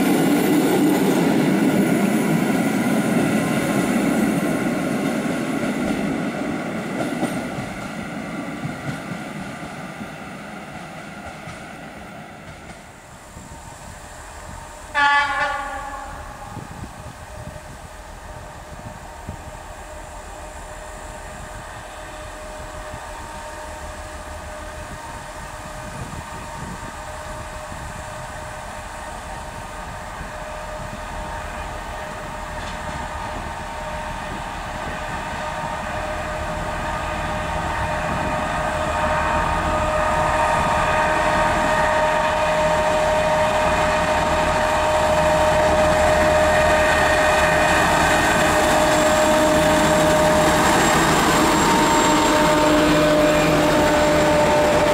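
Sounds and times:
diesel locomotive engine whine: 0:00.0 - 0:54.9.

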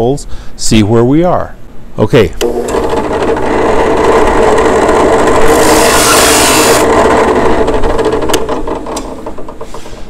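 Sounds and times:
drill press humming: 0:02.4 - 0:10.0
drill bit cutting hiss: 0:05.1 - 0:07.4.

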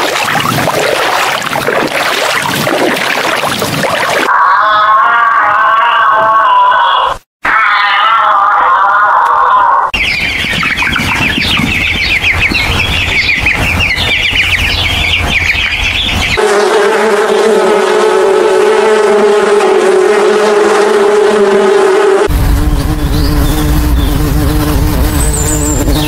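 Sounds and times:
chicks peeping: 0:10.0 - 0:16.4
bee wings buzzing: 0:16.4 - 0:26.0.

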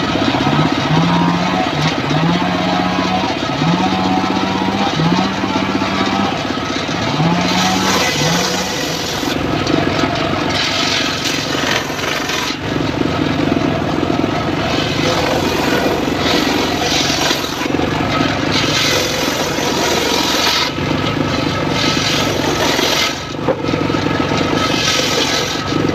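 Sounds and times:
engine drone: 0:00.0 - 0:25.9
circular saw ripping wood: 0:07.2 - 0:09.4, 0:10.5 - 0:12.7, 0:14.6 - 0:20.8, 0:21.4 - 0:23.6, 0:24.4 - 0:25.9.

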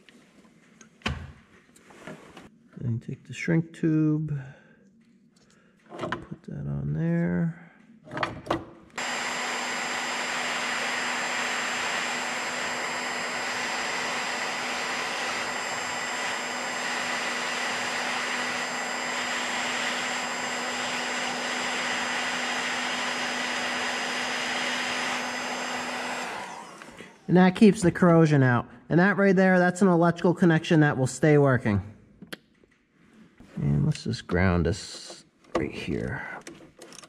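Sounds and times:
heat gun blowing: 0:09.0 - 0:27.3.

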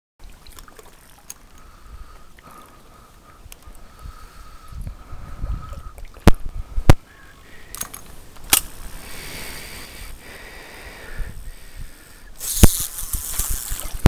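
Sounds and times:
water sloshing from wading: 0:00.2 - 0:03.1.

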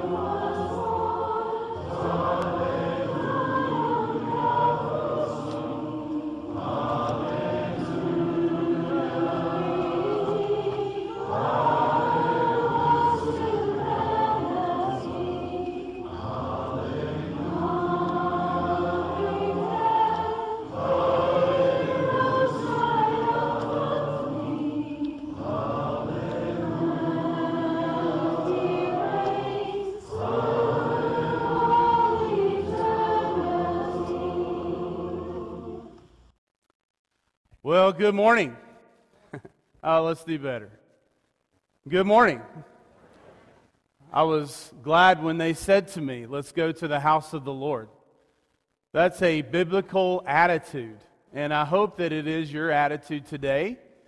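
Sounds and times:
group singing a hymn: 0:00.0 - 0:36.1.

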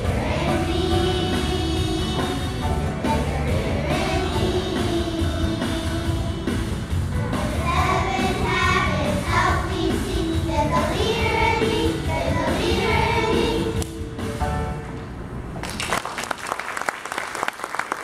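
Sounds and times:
children's choir singing: 0:00.0 - 0:14.2.

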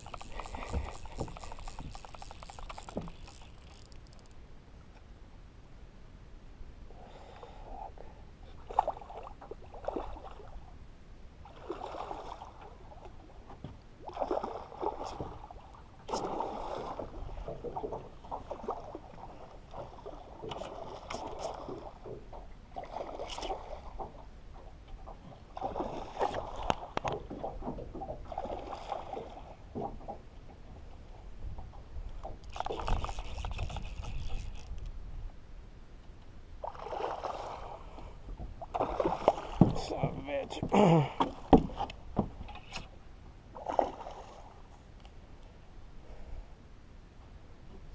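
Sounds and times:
fishing line scraping: 0:00.0 - 0:04.4, 0:14.0 - 0:22.1, 0:22.8 - 0:24.0, 0:25.6 - 0:27.2, 0:32.1 - 0:35.0, 0:41.8 - 0:43.0
water sloshing against boat: 0:00.0 - 0:04.4, 0:07.7 - 0:10.8, 0:11.4 - 0:35.4, 0:36.6 - 0:45.2.

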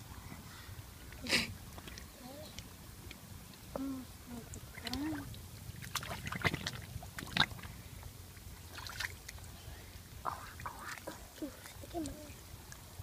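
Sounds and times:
muddy water splashing: 0:04.3 - 0:13.0.

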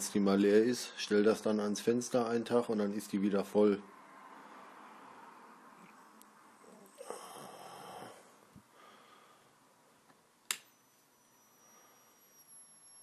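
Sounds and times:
faint high-pitched circuit whine: 0:04.8 - 0:13.0
lamp switch click: 0:10.4 - 0:10.7.

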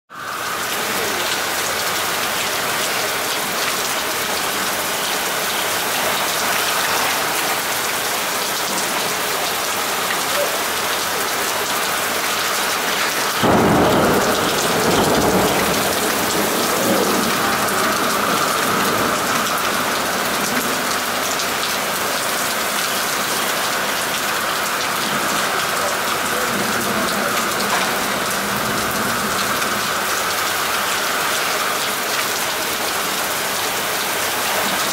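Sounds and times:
rain splashing on street: 0:00.1 - 0:34.9.

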